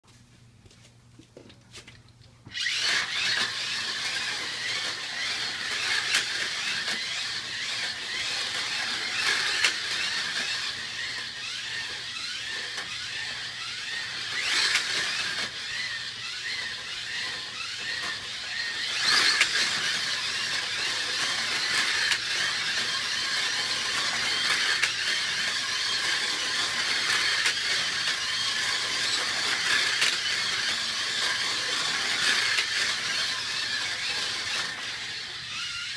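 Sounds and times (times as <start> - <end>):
slot car whirring and rattling: 2.5 - 35.9.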